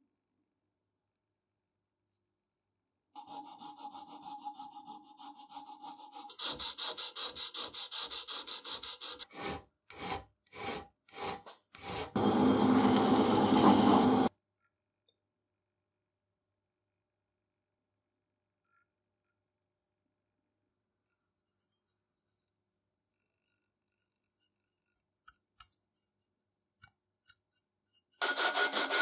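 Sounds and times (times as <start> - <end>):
hand file rasping on metal: 3.2 - 12.2, 28.2 - 29.0
drill press running: 12.1 - 14.3.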